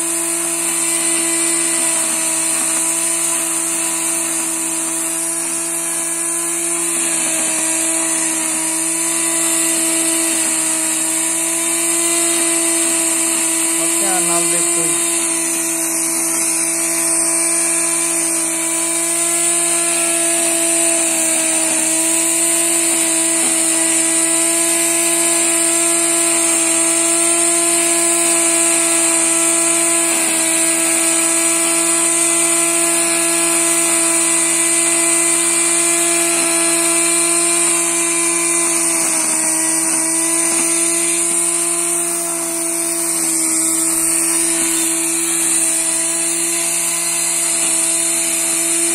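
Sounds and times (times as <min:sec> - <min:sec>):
angle grinder motor whining: 0:00.0 - 0:48.9.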